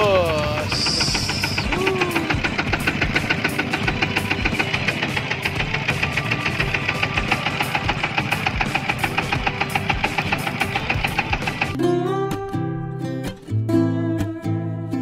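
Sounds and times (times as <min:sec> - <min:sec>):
boat engine knocking: 0:00.0 - 0:11.8.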